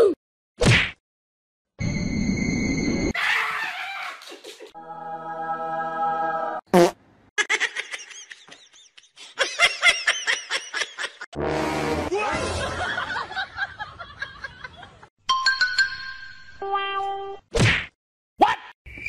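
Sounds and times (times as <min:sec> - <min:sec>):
people laughing: 0:07.4 - 0:11.3, 0:12.3 - 0:15.1.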